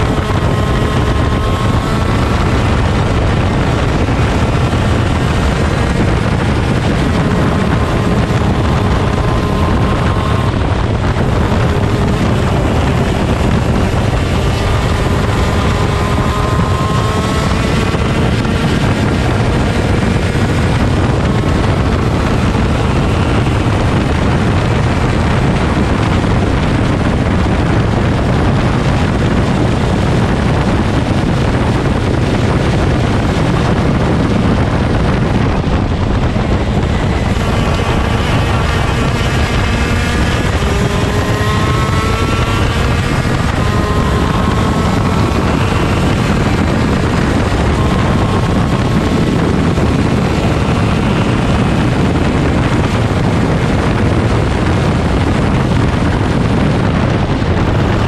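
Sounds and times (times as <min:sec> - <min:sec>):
kart engine revving: 0:00.0 - 0:58.0
wind buffeting microphone: 0:00.0 - 0:58.0.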